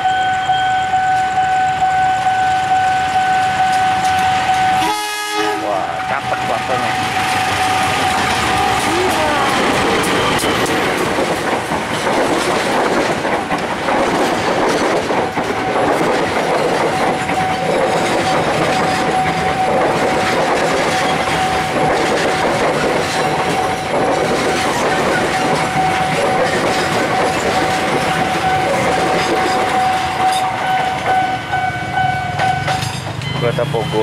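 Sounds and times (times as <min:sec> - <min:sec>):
steady high tone: 0:00.0 - 0:11.0, 0:24.6 - 0:34.0
diesel locomotive passing: 0:00.0 - 0:34.0
train wheels clattering over rail joints: 0:06.2 - 0:33.4.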